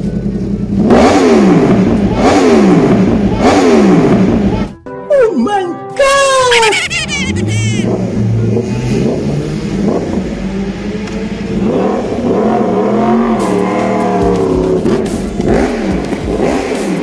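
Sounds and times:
motorcycle engine revving: 0.4 - 4.7, 7.8 - 17.0.

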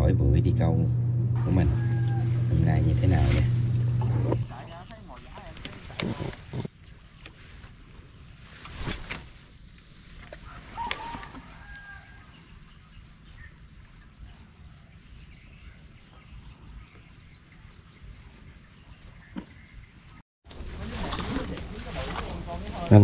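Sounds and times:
low rumble: 0.0 - 6.7
steady high whine: 0.0 - 10.7.

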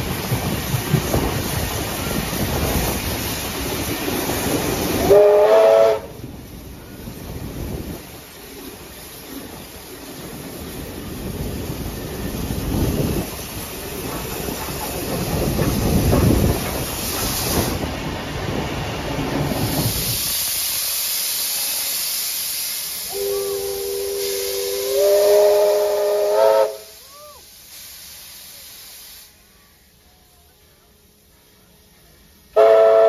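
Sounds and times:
steam hissing: 0.0 - 33.0
steam locomotive rumbling past: 0.0 - 33.0
chime steam whistle: 23.1 - 27.4.

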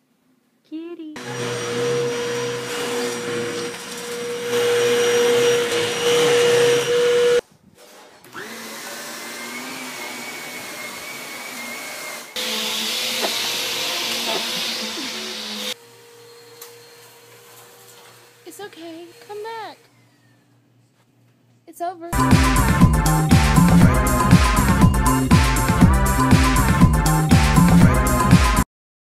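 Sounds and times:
vacuum cleaner running: 1.2 - 7.4, 8.3 - 20.4.

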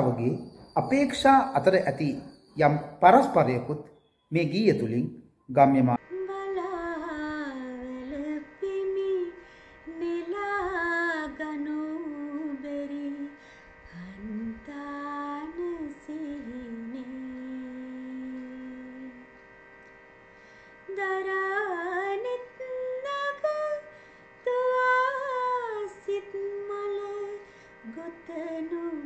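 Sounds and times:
woman singing wordless melody: 6.0 - 19.4, 20.9 - 29.0.

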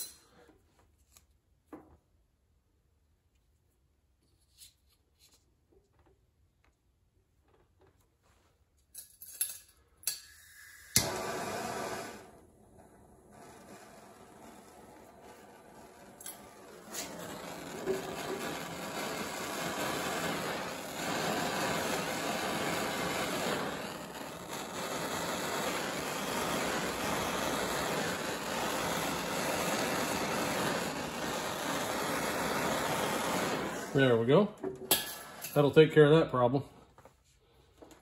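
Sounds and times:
torch igniter clicks: 10.0 - 12.3
torch flame hissing: 10.1 - 36.2.

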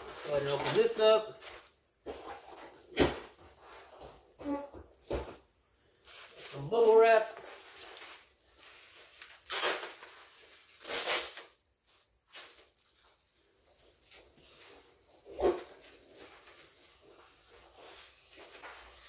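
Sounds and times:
bubble wrap crinkling: 0.0 - 2.3, 6.0 - 19.0.

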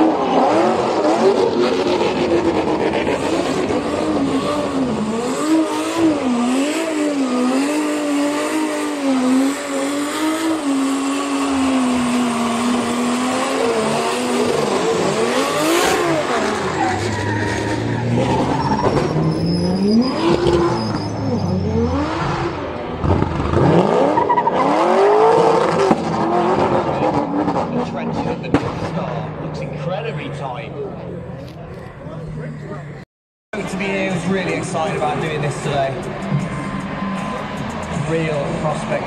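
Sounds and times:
car engine revving: 0.0 - 33.0, 33.6 - 39.0
tyres squealing: 16.4 - 21.8.

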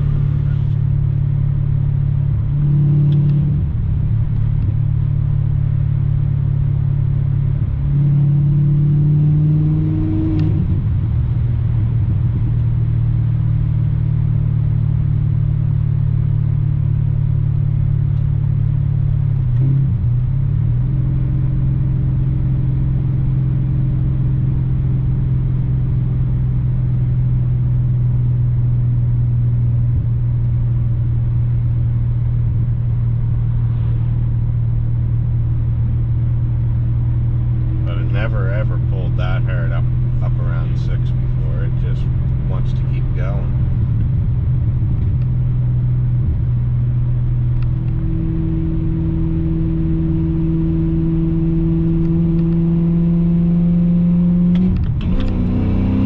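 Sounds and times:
car engine from inside cabin: 0.0 - 56.0.

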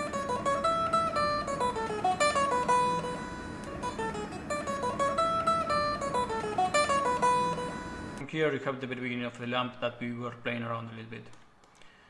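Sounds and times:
plucked notes melody: 0.0 - 8.2.

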